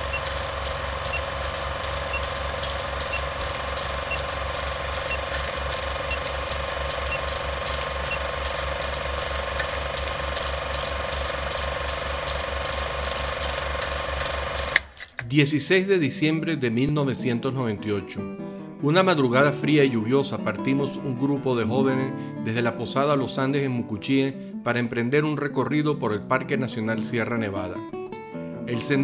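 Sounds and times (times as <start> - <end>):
film projector clattering: 0.0 - 15.3.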